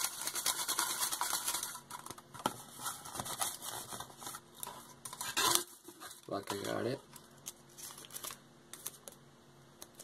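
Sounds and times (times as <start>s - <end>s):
paper slips rustling in plastic cup: 0.0s - 4.4s.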